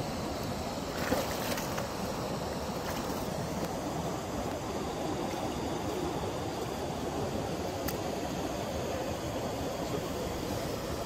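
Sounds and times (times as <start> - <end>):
light water splashes: 0.4 - 3.8.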